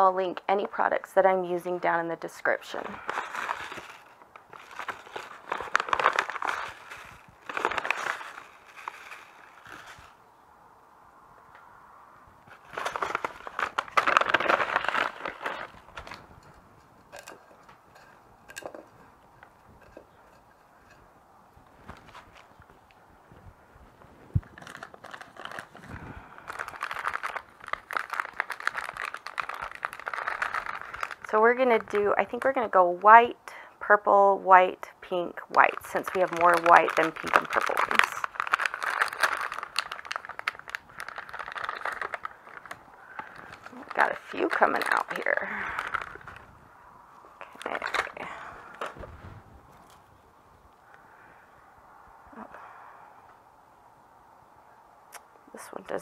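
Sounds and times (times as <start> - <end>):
plastic packet crinkling: 2.5 - 10.2, 12.5 - 17.6, 24.4 - 32.6, 35.4 - 46.5, 47.4 - 49.0.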